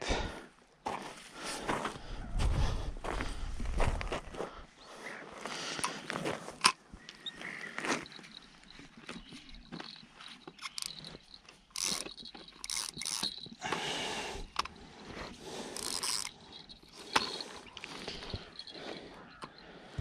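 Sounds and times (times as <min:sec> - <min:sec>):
fishing reel gears whirring: 0:09.2 - 0:14.8, 0:15.4 - 0:19.6.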